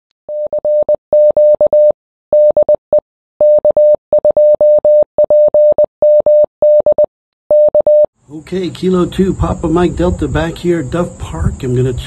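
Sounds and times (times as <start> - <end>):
morse code beeps: 0.3 - 8.1.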